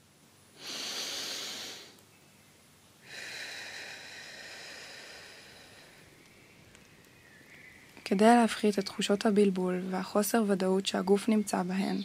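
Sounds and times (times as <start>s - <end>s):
person exhaling deeply: 0.6s - 2.0s, 3.0s - 6.1s.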